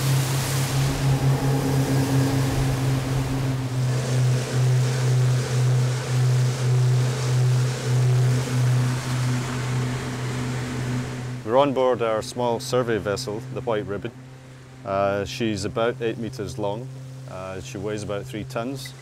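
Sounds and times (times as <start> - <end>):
rushing water and spray: 0.0 - 11.4
outboard motors droning: 0.0 - 19.0.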